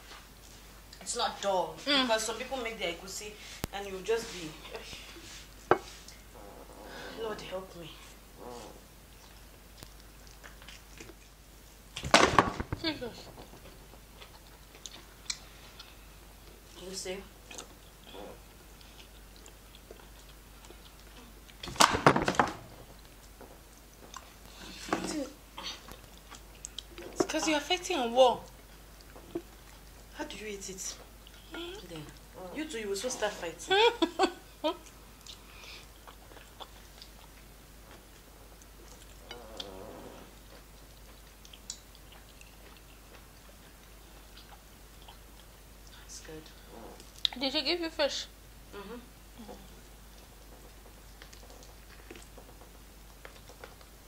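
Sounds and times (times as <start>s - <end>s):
person chewing food: 8.1s - 11.9s, 13.3s - 16.8s, 17.4s - 21.6s, 22.8s - 25.0s, 25.6s - 27.2s, 28.5s - 30.1s, 34.8s - 46.0s, 49.4s - 54.0s
clicks of eating at a table: 40.5s - 45.2s, 50.1s - 53.9s
person humming: 48.7s - 49.8s.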